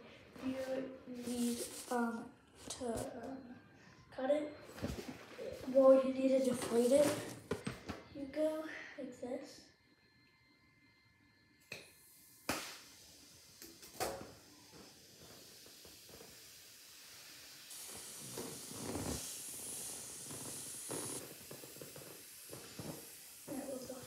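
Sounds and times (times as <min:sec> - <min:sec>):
air hissing out of balloon: 0:00.0 - 0:03.0, 0:12.0 - 0:24.0.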